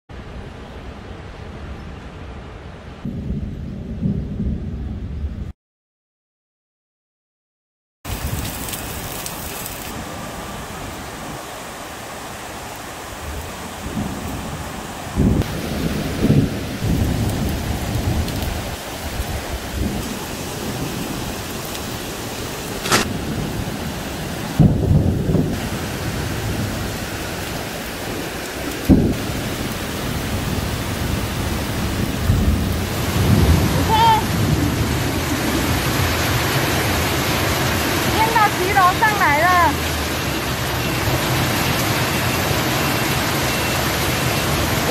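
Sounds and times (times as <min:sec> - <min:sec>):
thunder rumbles and claps: 0:03.0 - 0:05.5, 0:13.3 - 0:21.8, 0:22.8 - 0:39.0
heavy rain hissing: 0:08.1 - 0:44.9.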